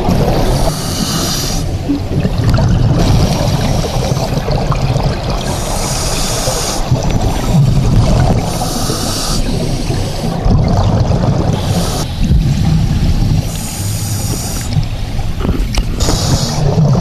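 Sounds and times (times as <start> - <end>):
regulator bubbly hiss: 2.8 - 10.5, 11.2 - 15.3, 15.9 - 17.0
low steady rumble: 9.5 - 16.0.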